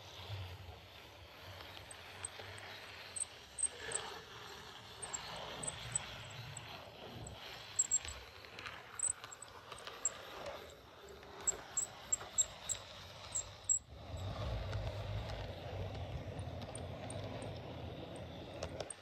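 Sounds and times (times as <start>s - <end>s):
low rumble of model train: 0.0s - 19.0s
model train wheels clicking: 0.0s - 19.0s.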